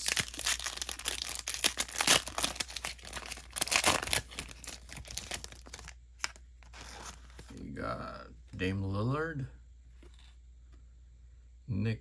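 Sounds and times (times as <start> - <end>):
foil wrapper tearing and crinkling: 0.0 - 6.0.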